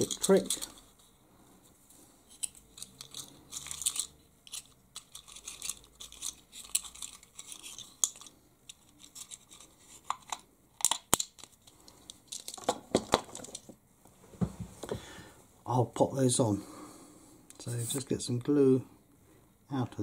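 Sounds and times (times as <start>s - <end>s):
wooden sticks rattling in holder: 0.0s - 0.9s, 2.3s - 13.7s.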